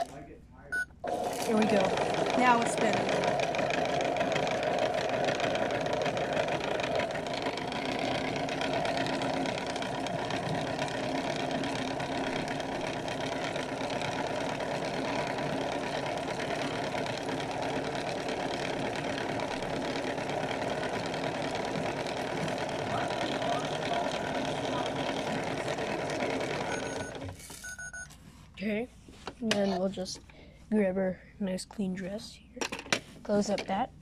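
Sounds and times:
toy washing machine motor: 0:01.0 - 0:28.0.

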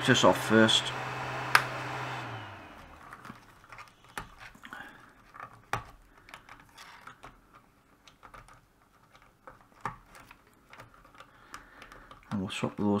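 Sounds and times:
cable rustling: 0:01.8 - 0:13.0
small plastic clicks: 0:02.9 - 0:13.0.

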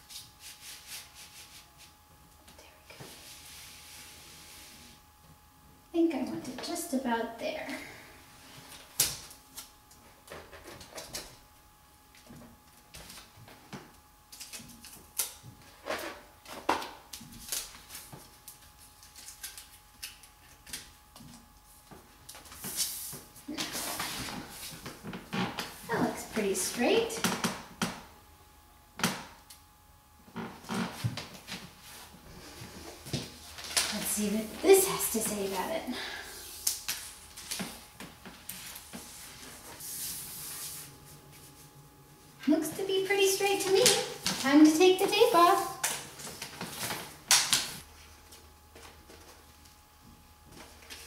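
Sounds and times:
vinyl sheet crinkling and rustling: 0:12.2 - 0:25.8, 0:30.7 - 0:35.7, 0:36.6 - 0:41.7, 0:43.2 - 0:49.7, 0:50.5 - 0:51.0.

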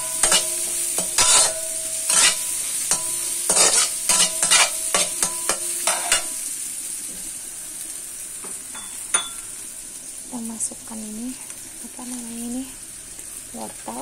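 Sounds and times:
spatula scraping a wok: 0:00.0 - 0:06.5
food sizzling in hot oil: 0:00.0 - 0:14.0.

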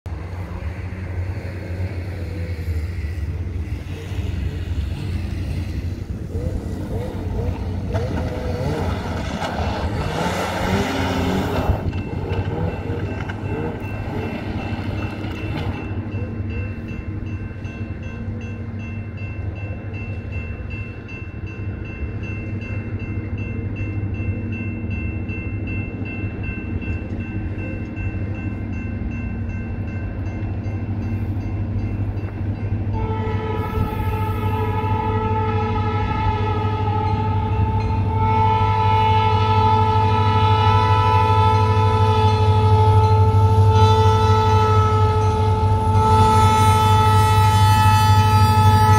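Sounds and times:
railroad crossing bell ringing: 0:00.2 - 0:48.9
snowmobile engine passing: 0:00.3 - 0:14.3.

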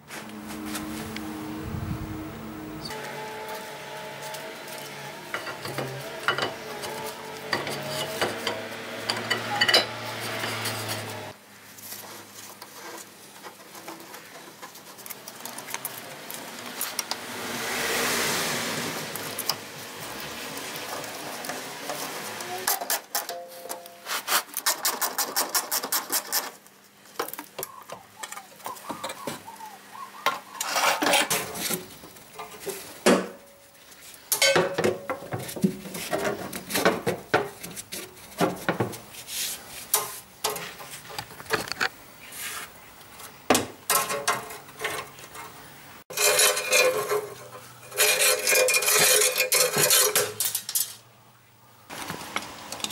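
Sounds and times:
metal scraping: 0:00.0 - 0:11.4, 0:30.5 - 0:32.9, 0:44.0 - 0:51.0.

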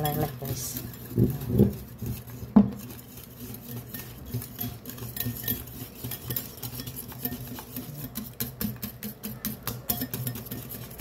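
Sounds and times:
wire whisk scraping a ceramic bowl: 0:00.0 - 0:11.0.

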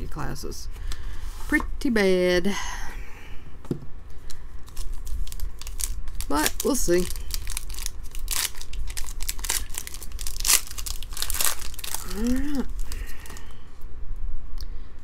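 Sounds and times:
foil wrapper tearing and crinkling: 0:04.6 - 0:13.6.

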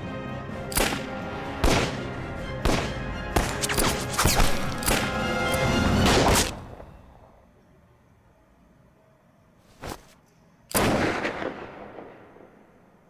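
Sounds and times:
dramatic film score: 0:00.0 - 0:07.6
sharp bangs: 0:00.6 - 0:07.1.

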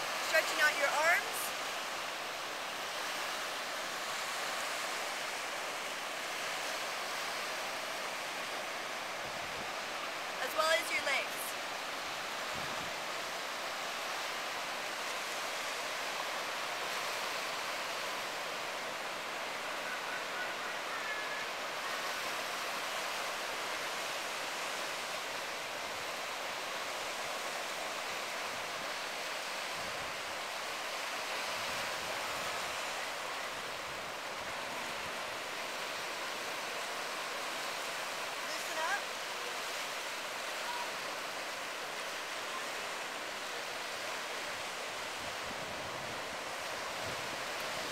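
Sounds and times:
ocean surf hissing: 0:00.0 - 0:26.8.

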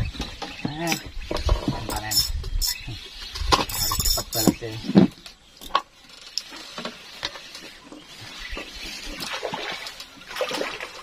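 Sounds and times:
small clicks and ticks: 0:00.8 - 0:07.8
water splashing and sloshing: 0:03.0 - 0:11.0.

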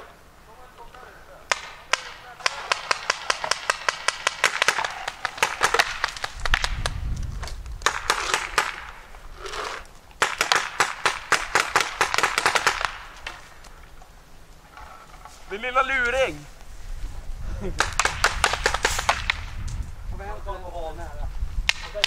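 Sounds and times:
paintball markers firing pops: 0:01.5 - 0:09.2, 0:09.8 - 0:13.8, 0:17.8 - 0:19.8, 0:21.6 - 0:22.0.

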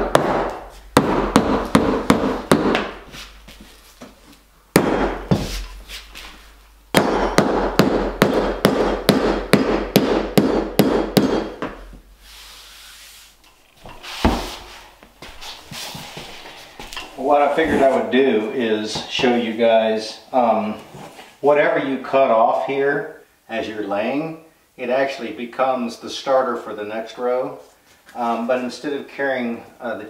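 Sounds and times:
mallet tapping flooring: 0:00.0 - 0:04.2, 0:07.0 - 0:12.0.

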